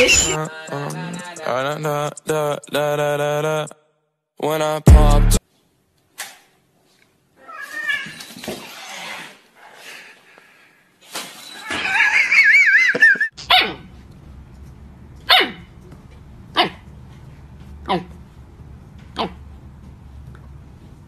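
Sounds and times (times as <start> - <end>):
cat high-pitched cry: 7.4 - 8.3
puppy yelping: 11.6 - 13.9, 15.3 - 15.7, 16.6 - 16.8, 17.9 - 18.1, 19.2 - 19.4.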